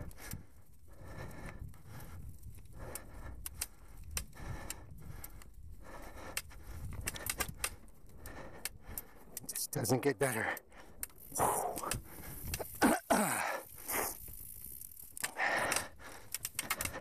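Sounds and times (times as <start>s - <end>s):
bike chain and frame clattering: 9.5s - 17.0s.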